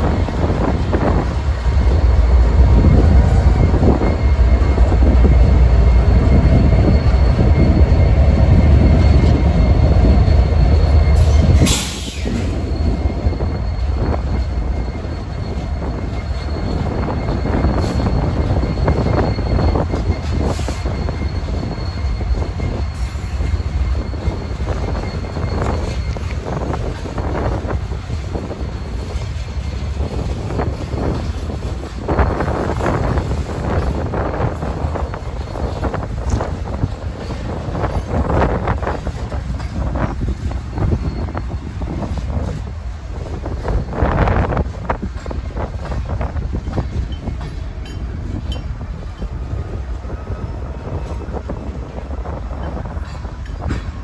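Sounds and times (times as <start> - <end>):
diesel locomotives rumbling: 0.0 - 54.0
train wheels clicking: 0.0 - 54.0
thin high squeal: 1.8 - 42.6.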